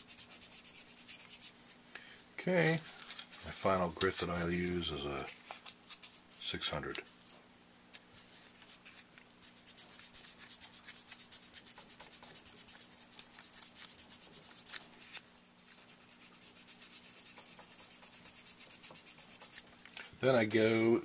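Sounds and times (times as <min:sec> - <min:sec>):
sandpaper rubbing: 0:00.0 - 0:01.6, 0:08.6 - 0:19.7.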